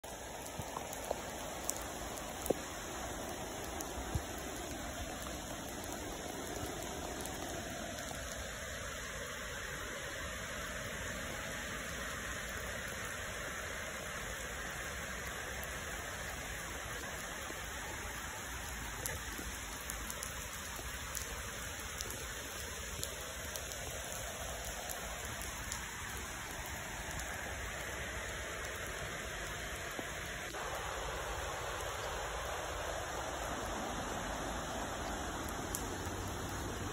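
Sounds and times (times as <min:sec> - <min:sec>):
raindrops ticking: 0:00.0 - 0:36.9
steady rain hiss: 0:00.0 - 0:36.9.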